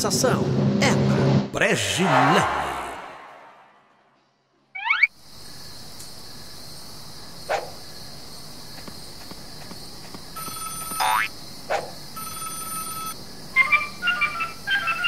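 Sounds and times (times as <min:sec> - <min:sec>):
night insects chirring: 0:04.2 - 0:15.0
footstep taps: 0:08.6 - 0:11.1
telephone ringing: 0:10.4 - 0:11.2, 0:12.2 - 0:13.2.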